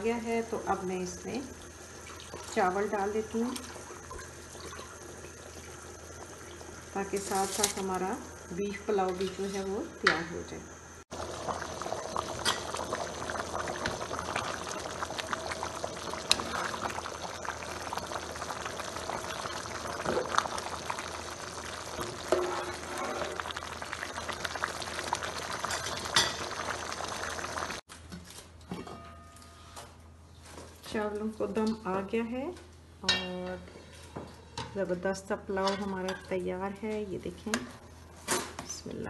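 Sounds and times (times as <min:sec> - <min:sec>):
pot boiling and bubbling: 0:00.0 - 0:27.9.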